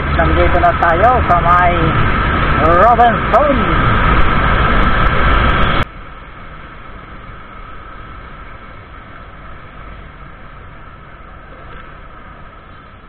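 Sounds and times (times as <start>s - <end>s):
wind on microphone: 1.1s - 5.9s.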